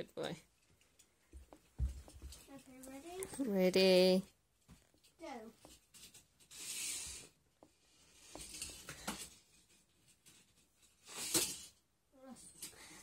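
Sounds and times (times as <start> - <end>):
toy car rolling on plastic track: 5.1 - 11.8.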